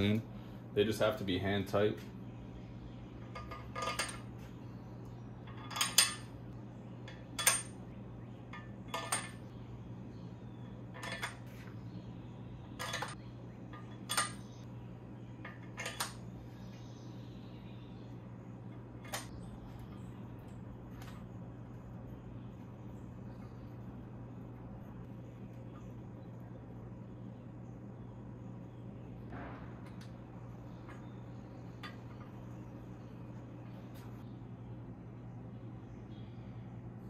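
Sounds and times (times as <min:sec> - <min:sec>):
steady low hum: 0:00.0 - 0:37.0
metal studs clinking: 0:03.3 - 0:04.4, 0:05.4 - 0:06.4, 0:07.1 - 0:07.8, 0:08.5 - 0:09.4, 0:10.9 - 0:11.6, 0:12.8 - 0:14.6.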